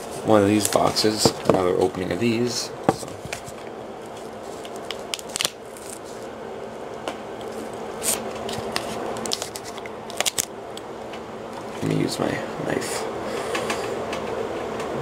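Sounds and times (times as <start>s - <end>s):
plastic shrink wrap crinkling: 3.0s - 6.3s, 7.4s - 10.5s.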